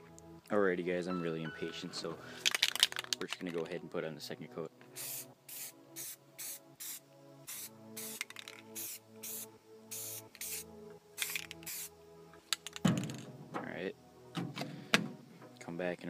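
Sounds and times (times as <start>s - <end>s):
background music: 0.0s - 16.0s
spray paint can hissing bursts: 5.0s - 11.9s.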